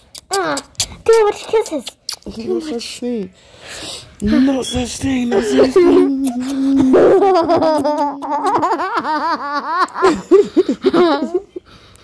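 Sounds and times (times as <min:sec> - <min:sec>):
child laughing: 0:05.3 - 0:11.6.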